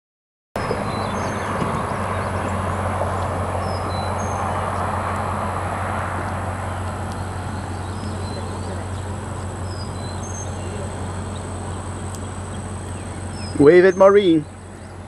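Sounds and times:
steady low hum: 0:00.6 - 0:15.0.

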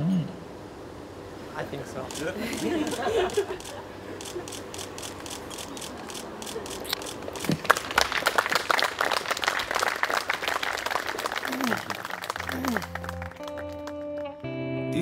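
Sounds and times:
people clapping: 0:07.4 - 0:14.5.

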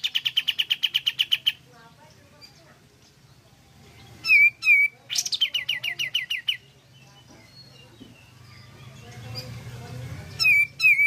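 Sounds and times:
bird singing whistles and notes: 0:04.2 - 0:09.4, 0:10.4 - 0:11.0.

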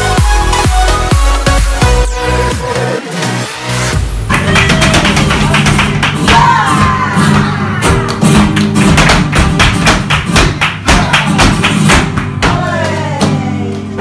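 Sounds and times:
flamenco guitar: 0:04.3 - 0:14.0
stamping footwork on wooden stage: 0:04.4 - 0:13.4
person singing: 0:12.4 - 0:14.0.

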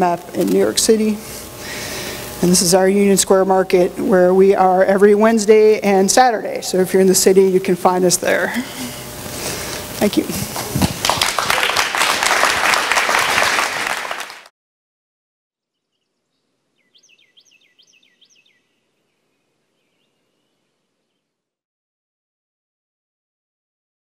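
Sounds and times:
audience applauding: 0:10.6 - 0:14.5
bird chirping: 0:15.6 - 0:21.3.

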